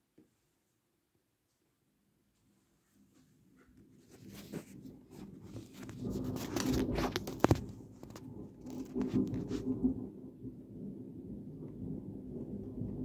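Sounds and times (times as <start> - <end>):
microphone handling noise: 4.0 - 9.9.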